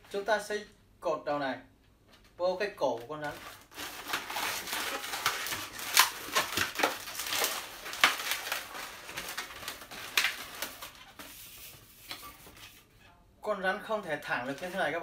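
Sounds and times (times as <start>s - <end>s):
balloons squeaking and rubbing: 3.2s - 13.0s.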